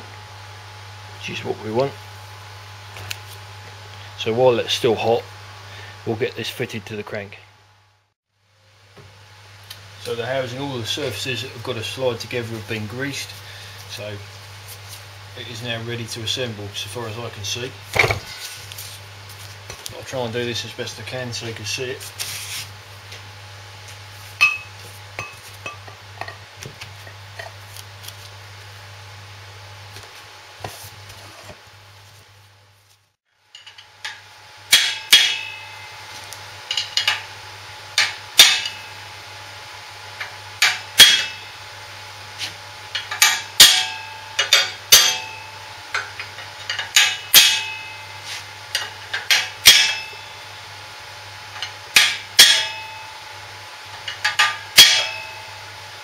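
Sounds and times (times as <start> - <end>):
hammer tapping metal drift: 24.4 - 26.4, 33.5 - 36.0, 38.0 - 39.1, 40.2 - 41.6, 42.9 - 50.6, 51.6 - 53.3, 54.0 - 55.7.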